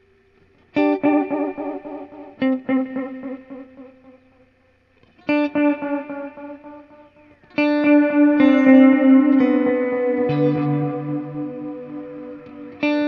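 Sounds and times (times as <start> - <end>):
electric guitar with delay repeats: 0.0 - 13.0.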